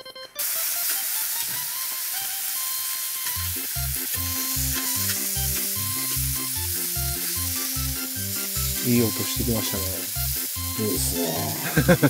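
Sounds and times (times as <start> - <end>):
vegetables sizzling in a pan: 0.4 - 12.0
background music with bass line: 3.4 - 12.0.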